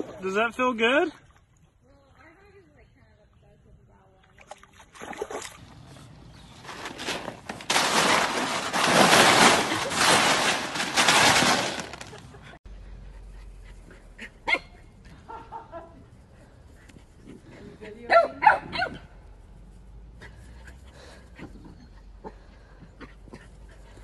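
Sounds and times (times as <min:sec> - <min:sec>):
dog splashing through ice: 0:06.5 - 0:12.2
dog barking: 0:18.1 - 0:19.1.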